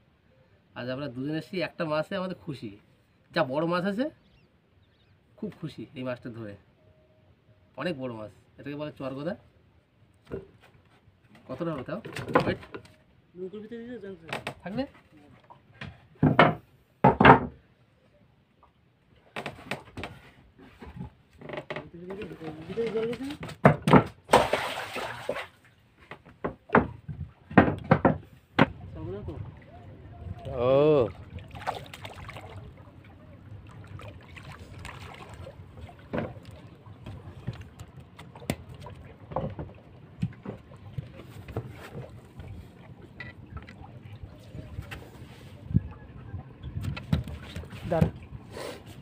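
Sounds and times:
knocks on wooden deck: 0:16.2 - 0:17.6, 0:23.4 - 0:24.2, 0:26.2 - 0:28.8
river water: 0:24.2 - 0:26.0, 0:28.4 - 0:49.0.

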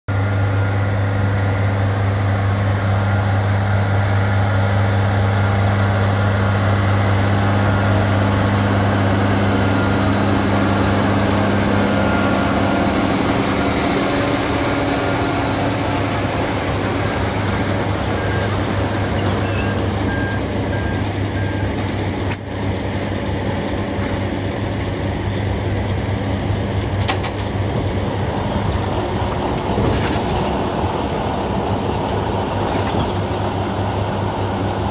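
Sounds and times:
strong low hum: 0:00.1 - 0:19.2
tractor and baler droning: 0:00.1 - 0:34.9.

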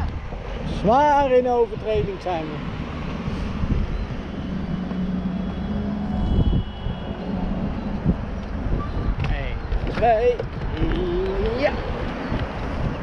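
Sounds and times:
cars driving past slowly: 0:00.0 - 0:13.0.

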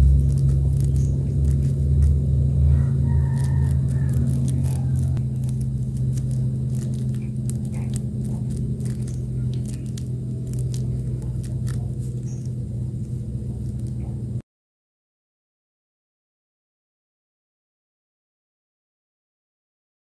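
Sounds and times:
steady low hum: 0:00.0 - 0:14.4.

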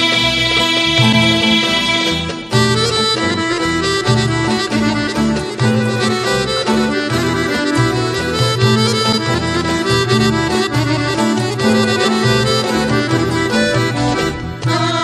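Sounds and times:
instrumental folk music: 0:00.0 - 0:15.0.

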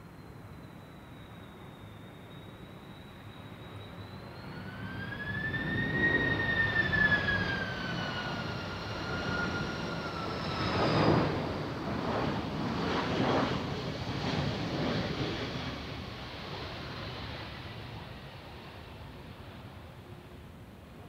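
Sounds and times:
jet airliner engines whining: 0:00.0 - 0:21.0
whistling tone: 0:00.6 - 0:10.1.

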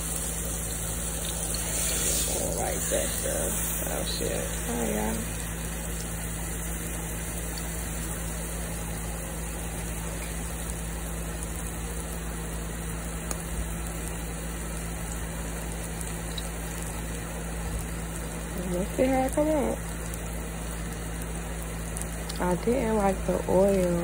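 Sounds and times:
steak sizzling in hot oil: 0:00.0 - 0:24.0.

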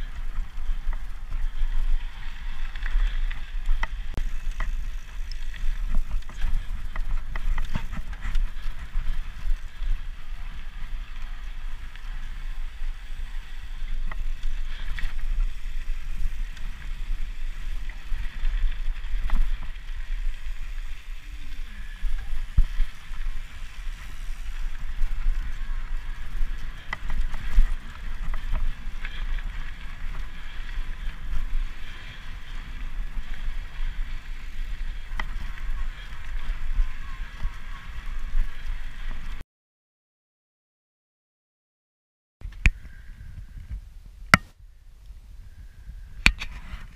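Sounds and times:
bike tyres rolling on gravel: 0:00.0 - 0:39.4
wind rumble on microphone: 0:00.0 - 0:39.4, 0:42.4 - 0:46.9.

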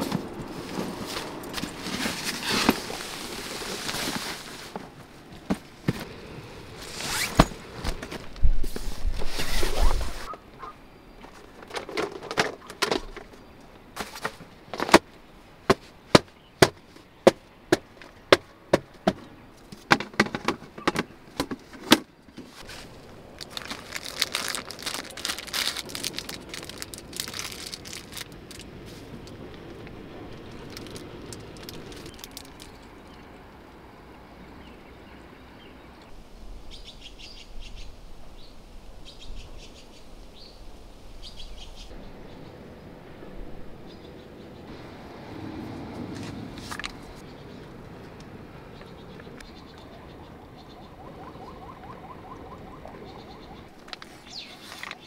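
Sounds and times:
fabric and bags rustling: 0:00.0 - 0:06.1, 0:06.8 - 0:10.3, 0:22.4 - 0:32.7.

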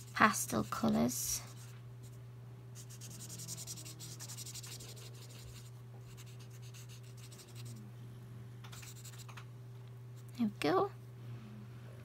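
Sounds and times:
marker scratching on paper: 0:00.0 - 0:02.2, 0:02.8 - 0:07.8, 0:08.7 - 0:09.4
steady low hum: 0:00.0 - 0:12.0.

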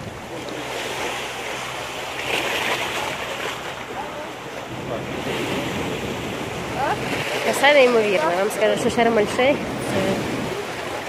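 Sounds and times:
sea waves washing in: 0:00.0 - 0:11.0
wind blowing on microphone: 0:04.4 - 0:11.0.

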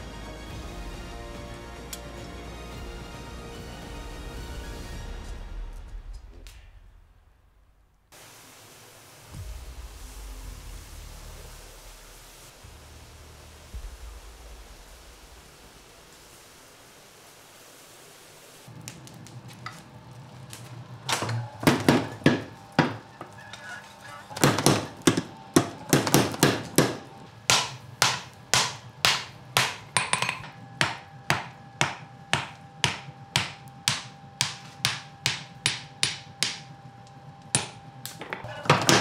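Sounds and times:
hammer blows on steel on anvil: 0:24.4 - 0:36.7.

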